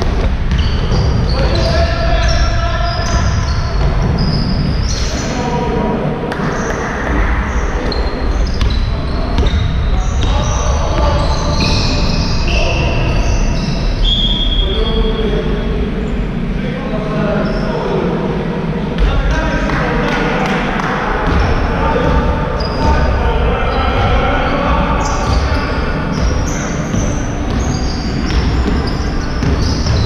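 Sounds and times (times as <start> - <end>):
basketball bouncing: 0.0 - 1.7, 8.4 - 12.0, 21.2 - 23.1, 25.2 - 30.0
sneakers squeaking on court: 0.0 - 5.4, 6.4 - 14.6, 21.2 - 23.1, 25.0 - 30.0
players' voices: 0.0 - 30.0.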